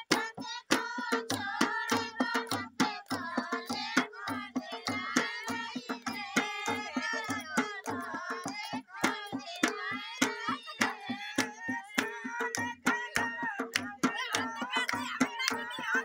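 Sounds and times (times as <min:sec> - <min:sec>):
dholak drum beat: 0:00.0 - 0:16.0
women singing folk song: 0:00.0 - 0:16.0
hand clapping: 0:05.4 - 0:16.0.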